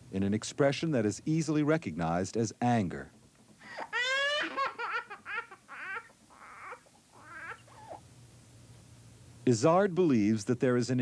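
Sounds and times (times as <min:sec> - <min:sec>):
toddler crying: 0:03.7 - 0:08.0.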